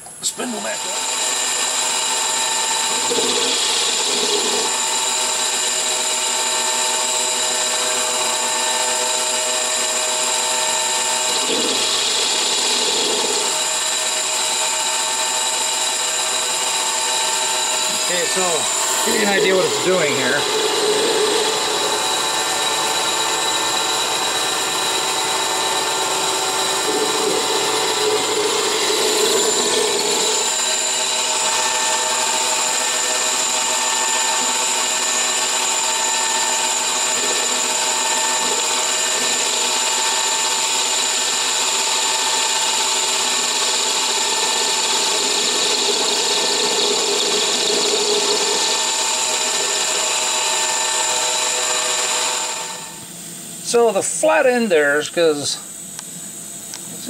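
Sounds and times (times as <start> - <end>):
metal lathe cutting: 0.4 - 54.6
high whining tones: 11.0 - 39.1.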